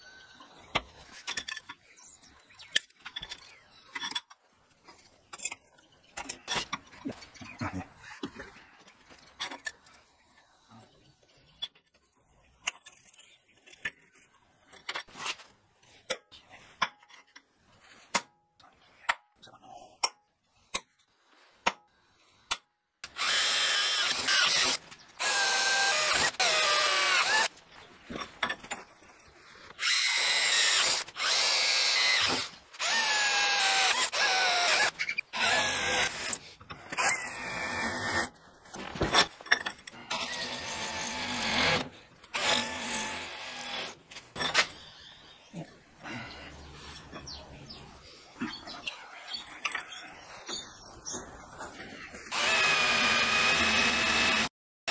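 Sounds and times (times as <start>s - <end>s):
power drill drilling into steel: 23.0s - 27.5s, 29.8s - 38.3s, 40.1s - 44.0s, 52.3s - 54.9s.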